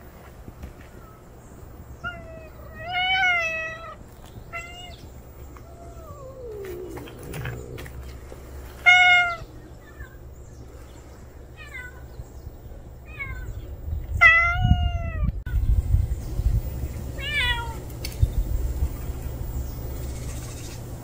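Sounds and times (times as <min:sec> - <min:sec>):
cat meowing: 0:02.0 - 0:05.0, 0:08.8 - 0:10.2, 0:11.6 - 0:12.0, 0:14.2 - 0:15.4, 0:17.2 - 0:17.8.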